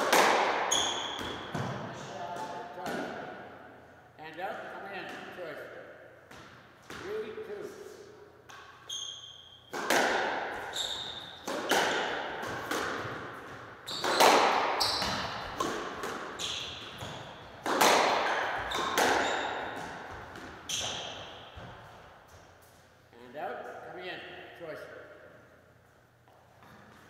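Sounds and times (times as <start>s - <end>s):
squash ball cracking off racquets: 0.0s - 3.4s, 9.7s - 22.6s
shoes squeaking on hardwood floor: 10.6s - 11.5s, 13.8s - 15.6s, 16.2s - 17.6s, 18.5s - 21.7s.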